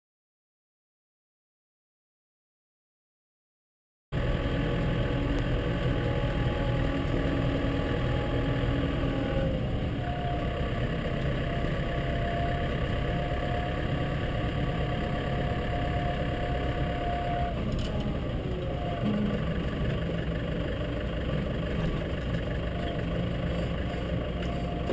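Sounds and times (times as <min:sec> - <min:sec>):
truck engine running: 0:04.2 - 0:24.9.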